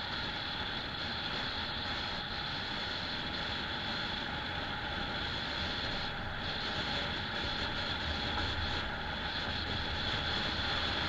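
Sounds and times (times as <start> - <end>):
car road and engine rumble: 0.0 - 11.0
wind hiss: 0.0 - 11.0.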